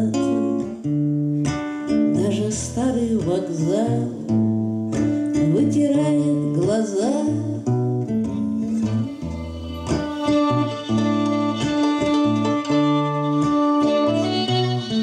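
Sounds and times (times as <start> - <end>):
acoustic guitar strummed: 8.2 - 15.0
violin melody: 8.5 - 15.0.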